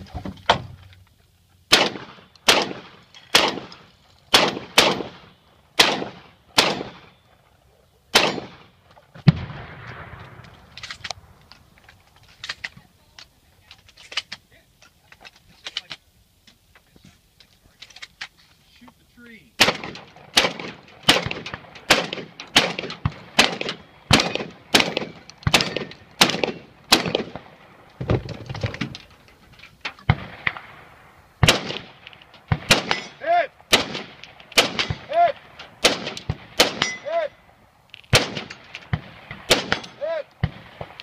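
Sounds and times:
rifle shots: 0:01.7 - 0:07.2, 0:08.1 - 0:11.1, 0:19.6 - 0:27.7, 0:30.0 - 0:37.3, 0:38.0 - 0:41.0
shotgun shots: 0:01.7 - 0:07.2, 0:08.1 - 0:10.4, 0:19.6 - 0:27.6, 0:31.4 - 0:37.3, 0:38.1 - 0:41.0.

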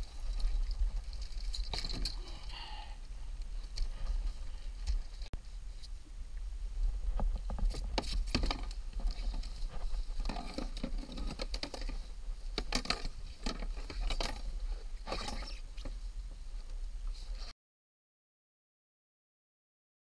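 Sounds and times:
clicks and rustles of fishing gear: 0:00.0 - 0:02.6, 0:03.4 - 0:06.0, 0:07.0 - 0:16.0
low wind rumble: 0:00.0 - 0:17.4.

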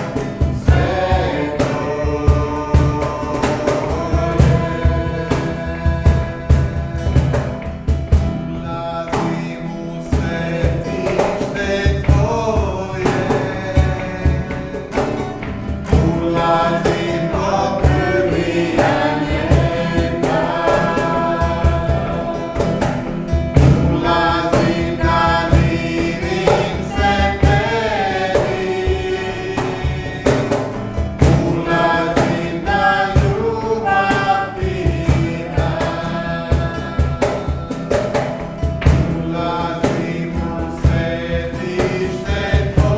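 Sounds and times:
low drum beat: 0:00.0 - 0:08.6, 0:10.2 - 0:42.9
man and woman singing: 0:00.0 - 0:42.9
strummed acoustic guitar: 0:00.0 - 0:42.9.

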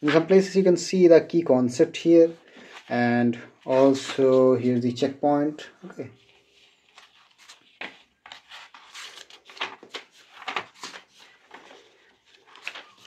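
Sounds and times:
book pages turning: 0:03.6 - 0:04.9, 0:06.2 - 0:13.0.

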